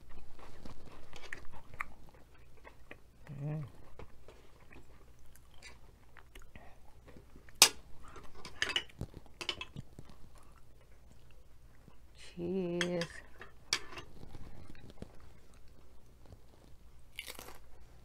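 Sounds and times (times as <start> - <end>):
person humming: 3.3 - 3.8.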